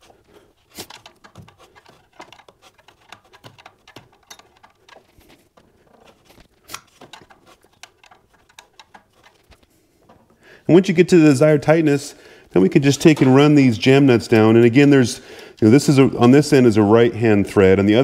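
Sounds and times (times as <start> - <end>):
wrench clicking and tapping metal: 0.9 - 5.1, 7.0 - 9.4.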